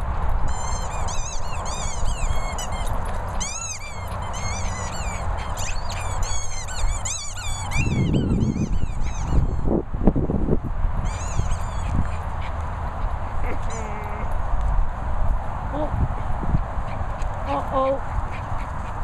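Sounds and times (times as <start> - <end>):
wind rumble on microphone: 0.0 - 19.0
rubber squeaky toy squeaking: 0.5 - 9.7, 11.0 - 12.1.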